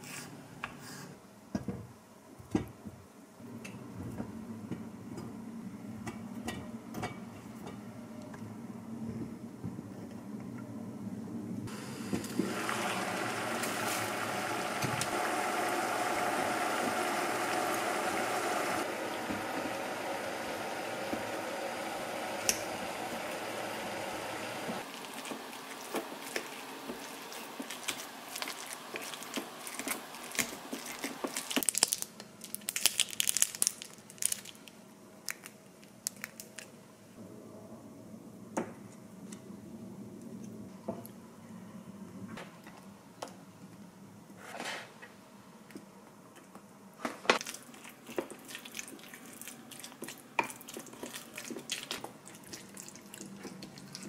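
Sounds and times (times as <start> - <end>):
steady rushing steam: 11.7 - 24.8.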